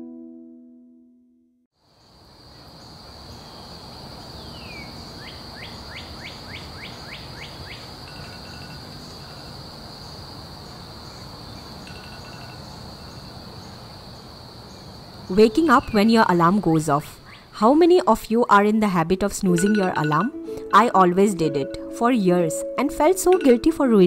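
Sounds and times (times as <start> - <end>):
high insect trill: 1.8 - 18.0
bird chirps: 4.3 - 9.6.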